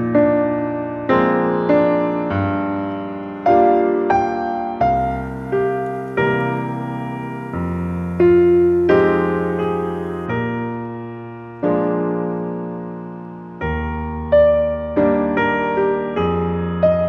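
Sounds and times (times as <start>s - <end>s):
gentle piano chords: 0.0s - 17.0s.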